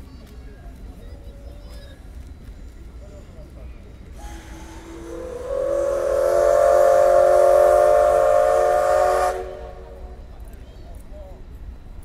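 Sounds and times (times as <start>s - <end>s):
steam locomotive whistle blast: 4.2s - 10.2s.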